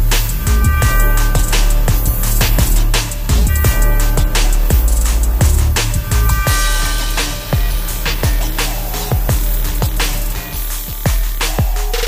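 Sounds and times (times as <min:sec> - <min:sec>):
music with drum beat and bass: 0:00.0 - 0:12.0.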